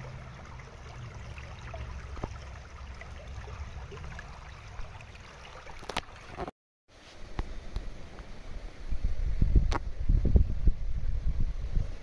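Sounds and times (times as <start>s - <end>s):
stream trickling over stones: 0.0s - 6.5s.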